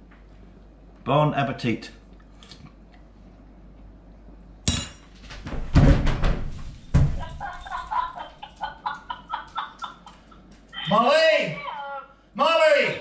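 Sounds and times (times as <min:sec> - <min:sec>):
body thumping on kitchen floor: 0:05.2 - 0:07.6
sudden clatter: 0:05.3 - 0:07.6.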